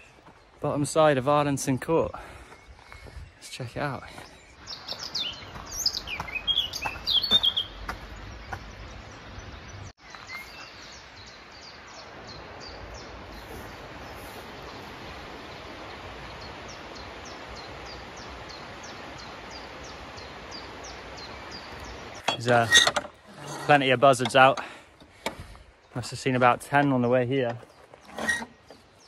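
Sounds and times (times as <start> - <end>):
bird chirping: 1.7 - 22.9
steady hiss: 10.9 - 22.2.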